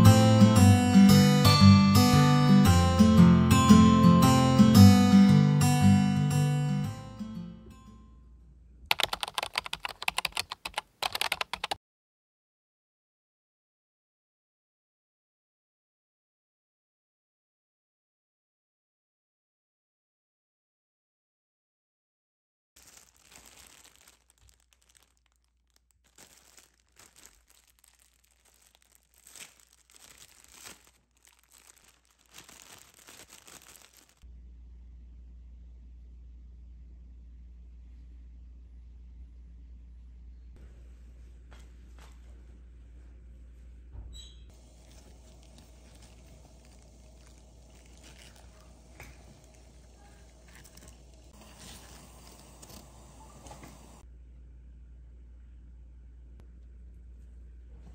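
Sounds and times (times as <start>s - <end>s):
plastic bag crinkling: 22.8s - 34.2s, 44.5s - 52.9s
wet leaves crackling when handled: 22.8s - 34.2s, 44.5s - 53.9s
steady low hum: 44.6s - 57.9s.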